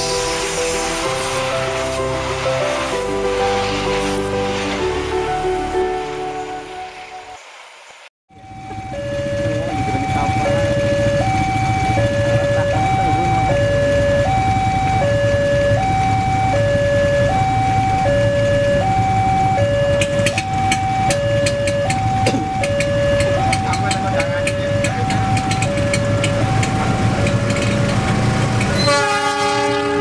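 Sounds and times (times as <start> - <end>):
train rumble: 0.0 - 8.0, 8.7 - 18.2, 18.8 - 30.0
two-tone crossing alarm: 8.3 - 30.0.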